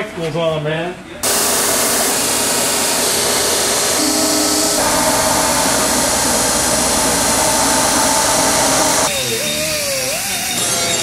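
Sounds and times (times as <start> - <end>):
motor hum: 1.2 - 11.0
belt grinder grinding metal: 3.0 - 11.0.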